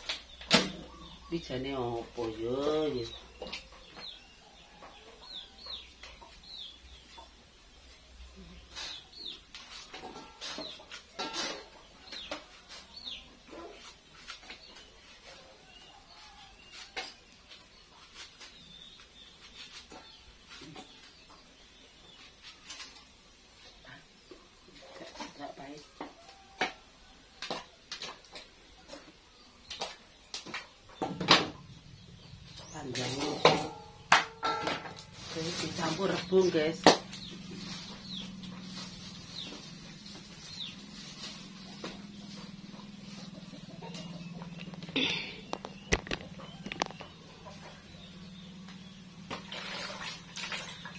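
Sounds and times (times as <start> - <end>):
birds cheeping: 0.0 - 13.9, 35.2 - 49.4.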